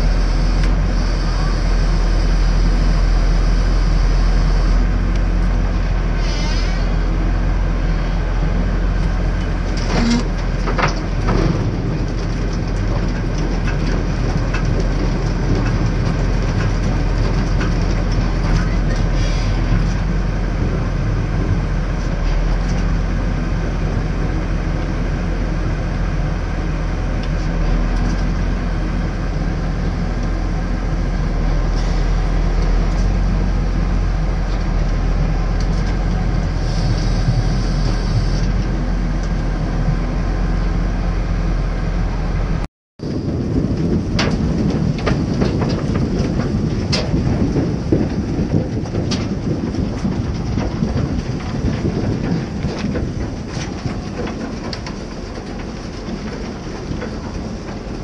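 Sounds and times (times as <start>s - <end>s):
harvester clatter: 0.0s - 58.0s
tractor engine running: 0.0s - 58.0s.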